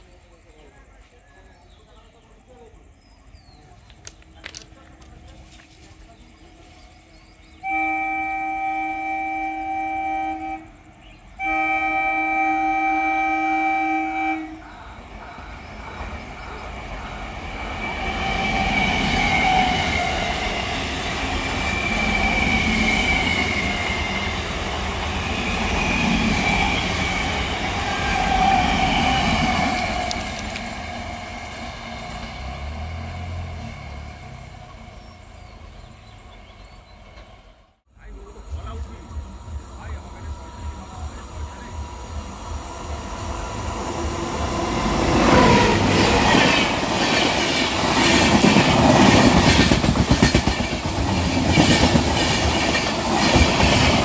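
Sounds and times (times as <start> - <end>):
train rumble and rail clatter: 0.0 - 11.4, 13.1 - 54.0
train horn blasts: 7.5 - 14.9.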